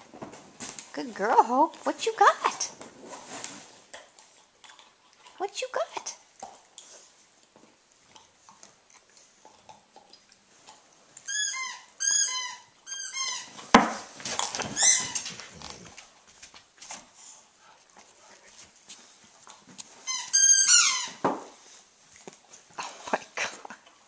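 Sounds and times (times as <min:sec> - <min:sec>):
dogs scuffling: 0:00.0 - 0:04.2, 0:13.4 - 0:20.2.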